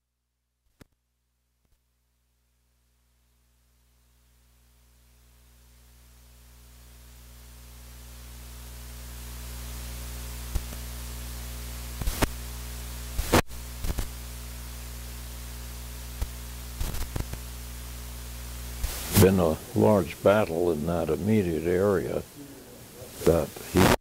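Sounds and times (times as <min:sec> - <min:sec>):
electrical hum and hiss: 0:01.7 - 0:24.0
sharp clicks and crackles: 0:12.0 - 0:12.4, 0:13.2 - 0:14.2, 0:16.2 - 0:17.5.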